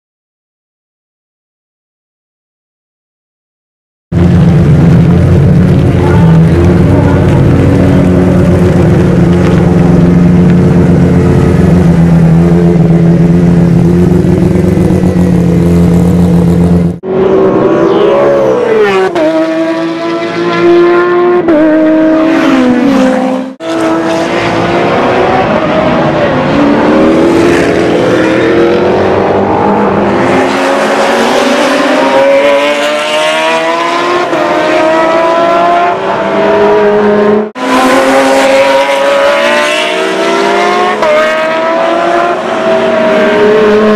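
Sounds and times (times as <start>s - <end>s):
race cars passing: 4.2s - 15.6s, 16.4s - 43.9s
car engine running steadily: 4.2s - 17.0s
race cars accelerating and shifting: 4.2s - 43.9s.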